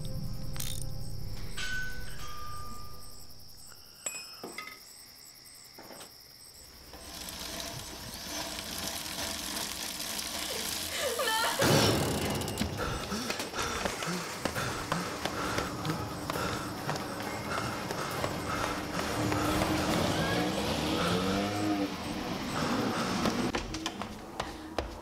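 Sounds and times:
music: 0.0 - 3.7.

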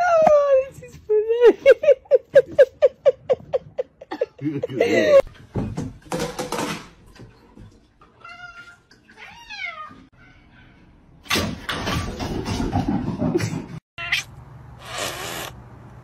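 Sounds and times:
cat meowing: 14.0 - 15.5.

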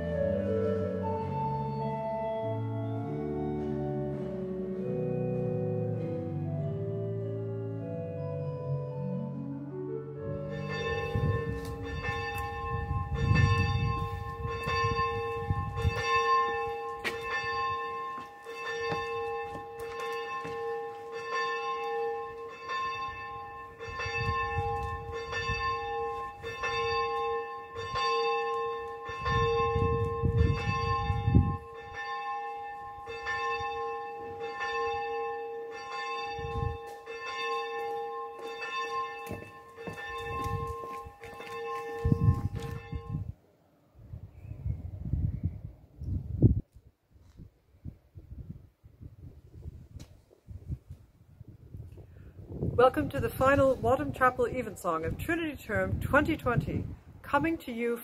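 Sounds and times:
church bell tolling: 10.3 - 43.3.

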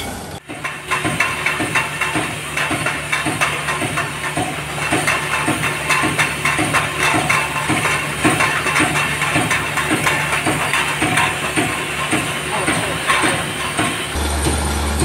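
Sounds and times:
machine hum: 0.0 - 15.0
rapid clatter of knocks: 0.4 - 14.2.

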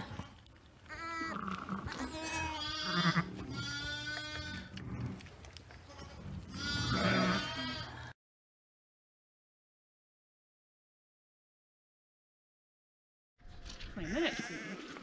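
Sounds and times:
sheep and lambs bleating: 0.0 - 5.0, 5.8 - 8.2, 13.9 - 15.0.

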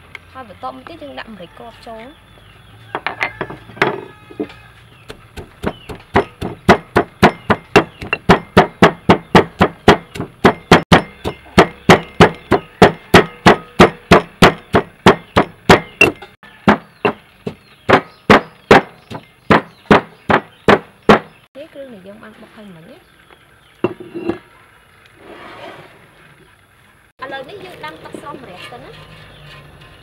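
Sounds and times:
stone pestle pounding in mortar: 5.0 - 21.3.

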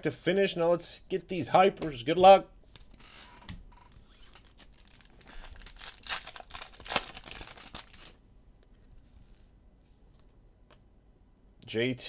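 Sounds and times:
foil wrapper tearing and crinkling: 4.2 - 8.2.

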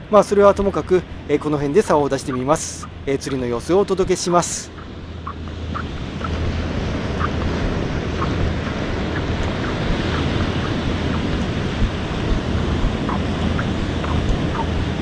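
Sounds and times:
wind buffeting microphone: 0.0 - 15.0
surf breaking on beach: 6.2 - 15.0.

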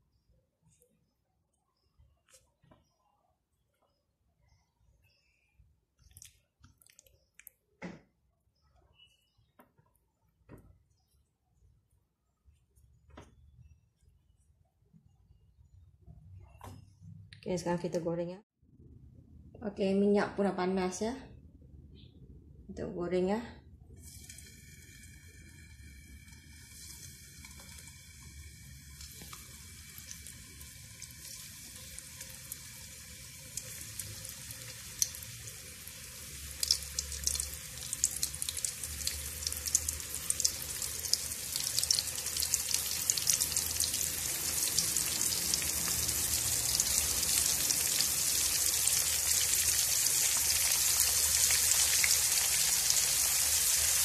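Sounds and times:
chicken deep-frying in oil: 24.0 - 54.0.

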